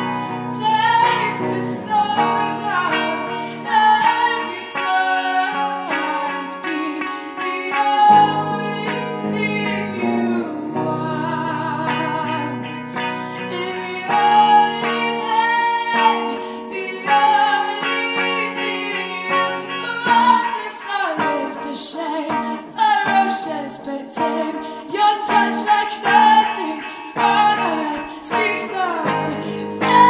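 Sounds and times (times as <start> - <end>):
plucked guitar: 0.0 - 30.0
woman singing: 0.0 - 30.0.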